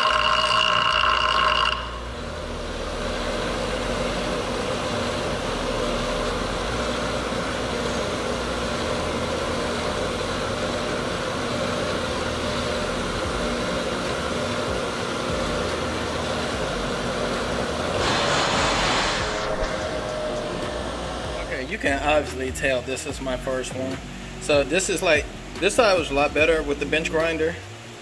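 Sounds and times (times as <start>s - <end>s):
bench grinder grinding metal: 0.0s - 21.7s.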